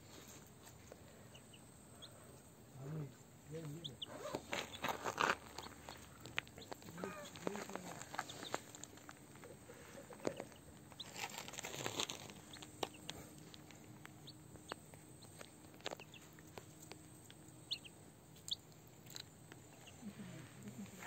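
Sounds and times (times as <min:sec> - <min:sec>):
ducklings peeping: 0:00.9 - 0:02.4, 0:03.0 - 0:21.0
feet and beaks rustling on gravel: 0:03.5 - 0:17.8.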